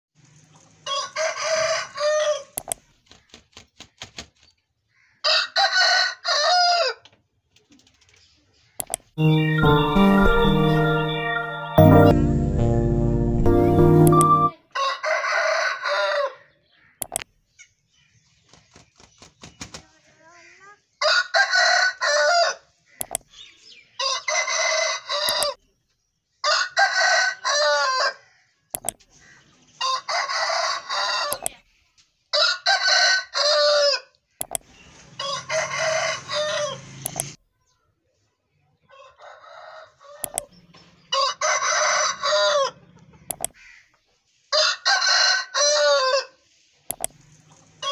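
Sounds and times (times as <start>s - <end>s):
roosters crowing: 0.8s - 2.6s, 5.2s - 7.0s, 14.7s - 16.5s, 21.0s - 22.6s, 24.0s - 25.6s, 26.4s - 28.3s, 29.8s - 31.5s, 32.3s - 34.1s, 34.9s - 37.0s, 38.9s - 43.8s, 44.5s - 46.4s
short sharp clicks: 17.0s - 17.3s, 23.0s - 23.3s, 28.8s - 29.1s, 37.0s - 37.4s, 40.2s - 40.5s, 43.3s - 43.6s.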